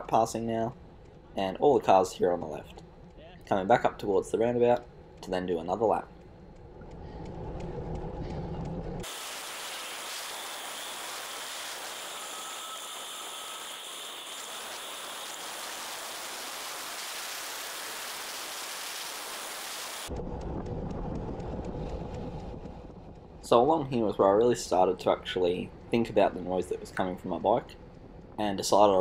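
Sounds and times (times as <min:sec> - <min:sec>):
rain-like hiss: 0:09.0 - 0:20.1.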